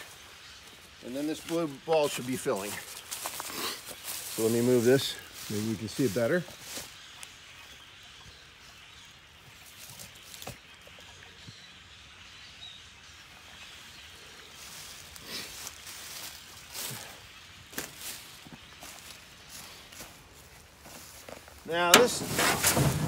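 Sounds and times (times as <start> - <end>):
footsteps in dry leaves: 0.0 - 7.8, 13.9 - 23.0
outdoor background hiss: 0.0 - 23.0.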